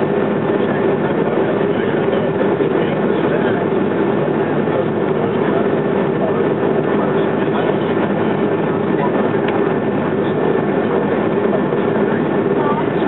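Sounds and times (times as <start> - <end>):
jet engines humming in cabin: 0.0 - 13.0.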